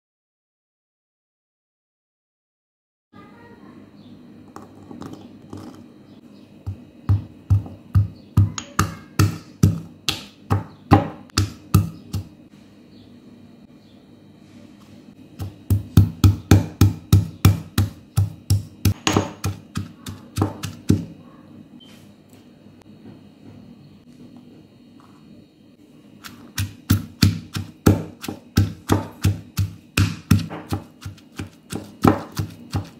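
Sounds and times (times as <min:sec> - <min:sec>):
pestle pounding in mortar: 0:06.6 - 0:12.4, 0:15.4 - 0:21.1, 0:26.2 - 0:32.9.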